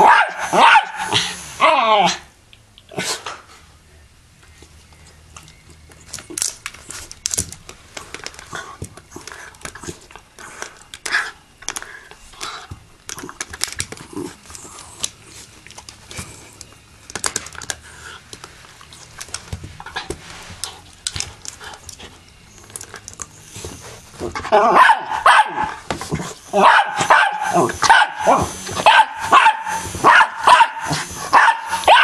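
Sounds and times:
dog barking: 0.0 - 1.2, 24.6 - 25.8, 26.5 - 32.0.

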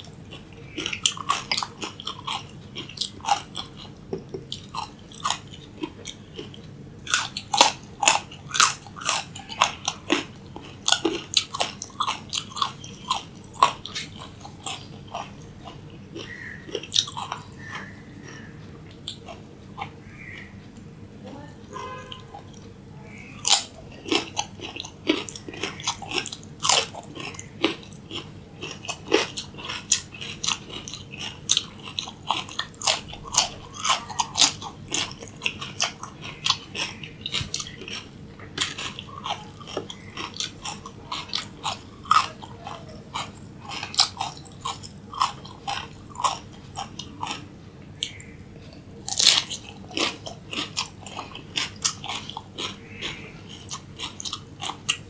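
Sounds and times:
crisp crunching of raw vegetables: 23.2 - 48.3, 49.1 - 55.0.

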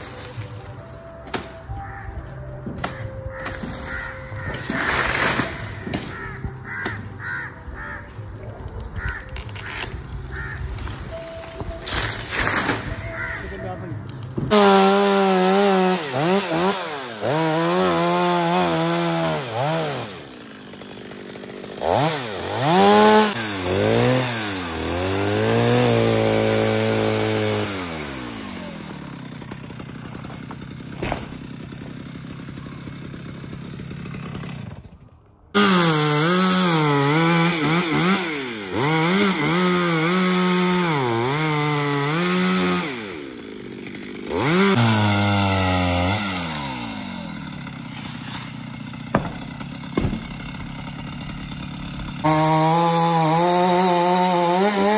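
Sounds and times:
chainsaw revving while cutting: 3.4 - 7.4, 14.5 - 34.9, 35.5 - 54.9.

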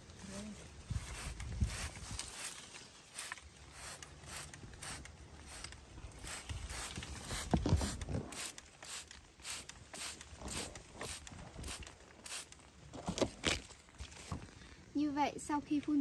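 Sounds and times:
trigger sprayer hissing bursts: 3.1 - 12.6.

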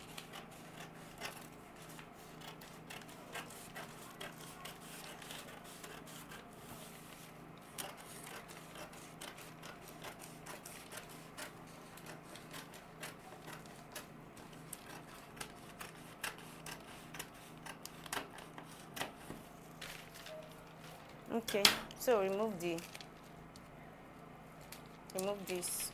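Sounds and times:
scissors snipping paper: 0.0 - 6.4, 7.6 - 19.2
paper crackling: 0.0 - 21.4, 22.2 - 23.4.

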